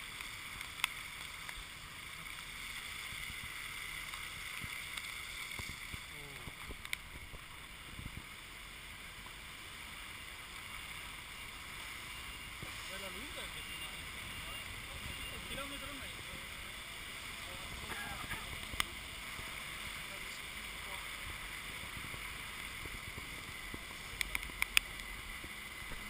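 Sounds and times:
steady hissing noise: 0.0 - 26.0
sharp clicks: 24.2 - 25.1.

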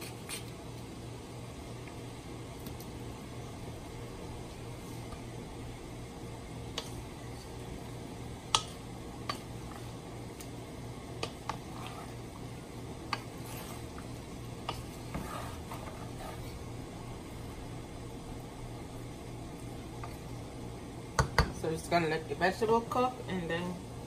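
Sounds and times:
steady low hum: 0.0 - 24.0
wooden spoon stirring food in pot: 1.7 - 22.0.

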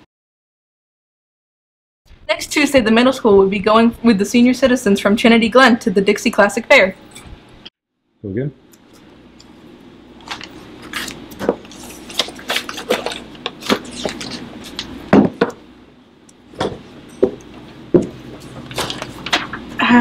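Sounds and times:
low room hum: 2.2 - 20.0.

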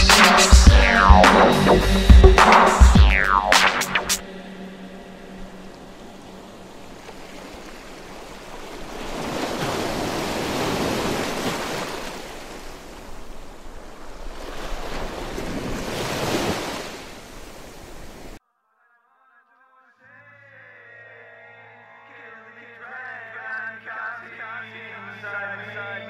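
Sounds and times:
ocean waves rushing: 0.0 - 18.4.

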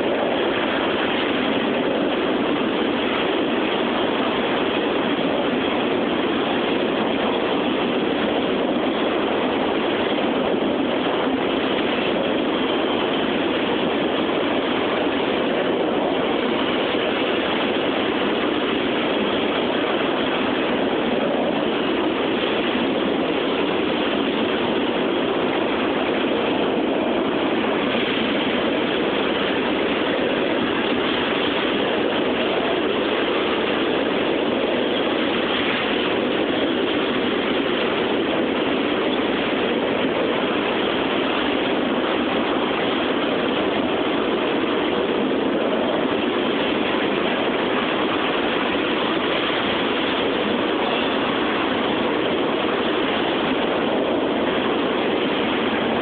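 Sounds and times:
train cars rolling on rails: 0.0 - 56.0.

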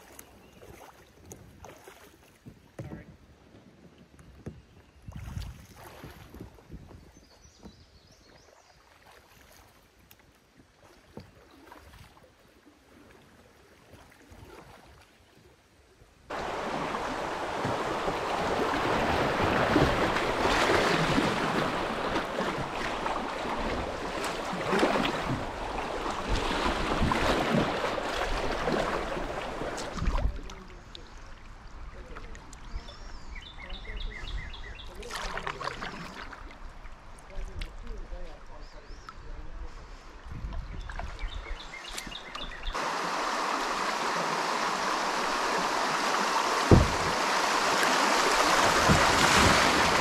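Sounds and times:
river water rushing and splashing: 16.3 - 32.1, 42.2 - 50.0.

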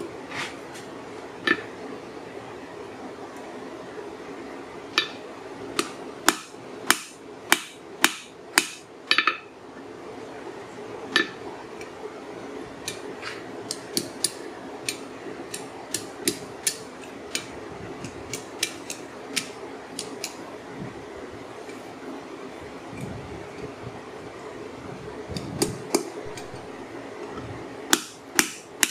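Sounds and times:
steady low hum: 0.0 - 28.9
hammer striking metal on anvil: 5.8 - 9.5, 27.9 - 28.9.

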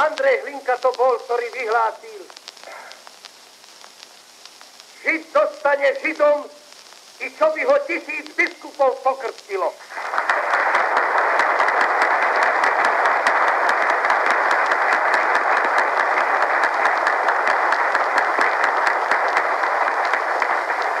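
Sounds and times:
crowd applauding: 9.8 - 21.0.

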